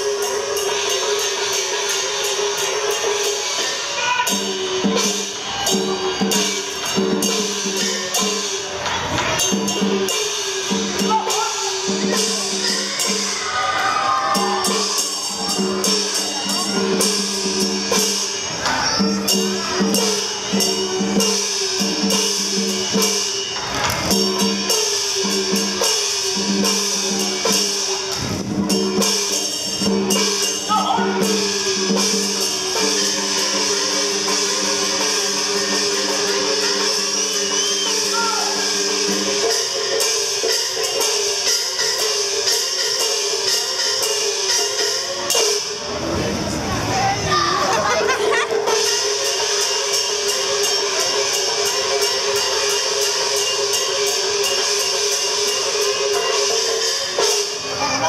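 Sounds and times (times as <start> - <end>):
cymbal clashes: 0.0 - 46.0, 48.3 - 58.0
drum strokes: 0.0 - 58.0
percussion strikes: 0.0 - 58.0
gongs with falling pitch: 9.0 - 24.6.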